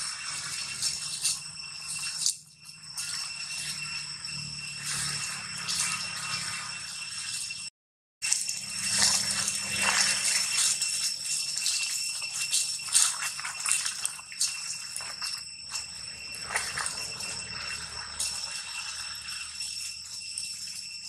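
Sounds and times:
steady high-pitched drone: 0.0s - 21.0s
dry leaves rustling and crackling: 8.2s - 20.7s.

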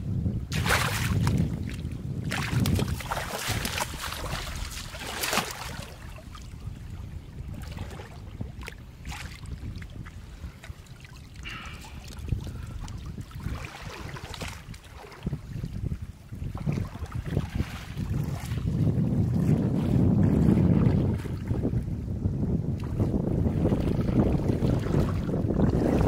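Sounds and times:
shallow water splashing: 0.5s - 21.6s, 22.8s - 26.0s.

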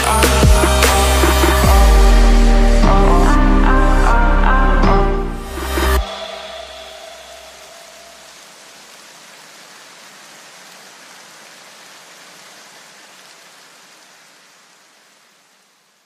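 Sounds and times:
music: 0.0s - 7.7s
steady hiss: 5.6s - 16.0s.

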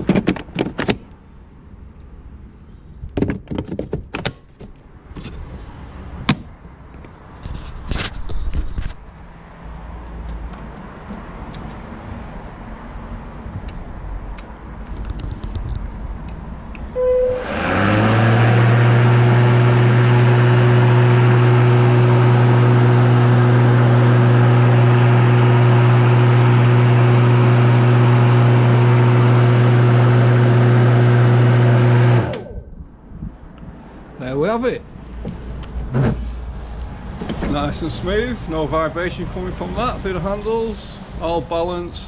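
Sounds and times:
brief tone: 17.0s - 17.6s
lawn mower motor humming: 17.0s - 32.6s.

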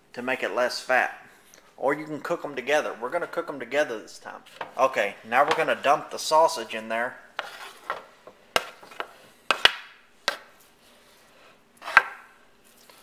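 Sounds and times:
spoon knocking and scraping: 7.4s - 10.5s, 11.8s - 12.3s.

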